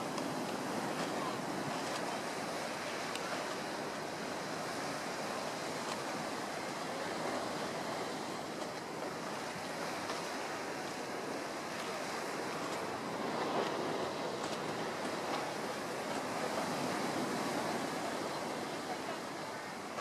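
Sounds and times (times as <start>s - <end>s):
ocean waves: 0.0s - 20.0s.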